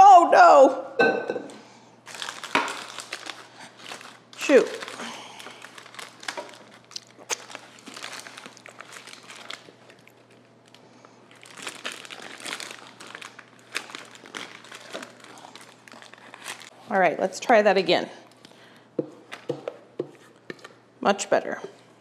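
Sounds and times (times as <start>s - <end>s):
parchment paper crinkling: 2.1s - 16.8s.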